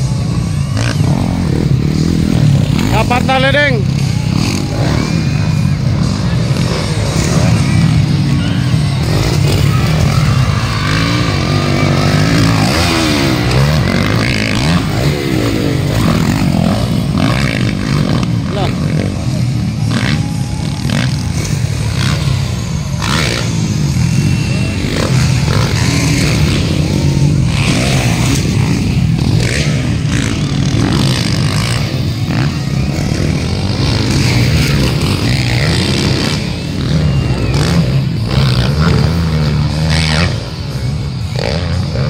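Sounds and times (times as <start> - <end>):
motocross bike engines revving: 0.0 - 42.0.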